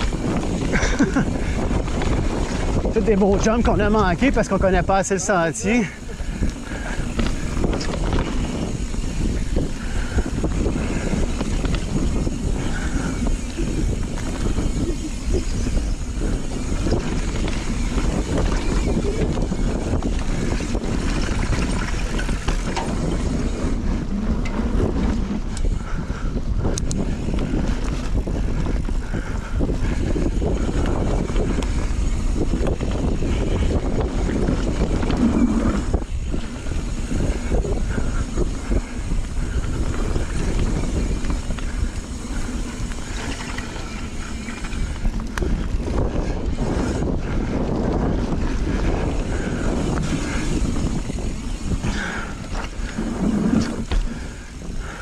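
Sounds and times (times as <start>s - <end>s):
bike tyres rumbling on dirt: 0.0s - 55.0s
wind rushing over microphone: 0.0s - 55.0s
bike knocks and rattles: 6.2s - 25.8s, 30.1s - 55.0s.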